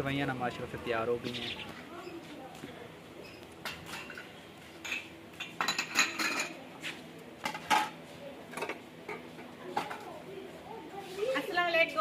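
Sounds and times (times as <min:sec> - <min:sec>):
metal dishes clinking: 0:03.6 - 0:06.6, 0:07.4 - 0:10.1.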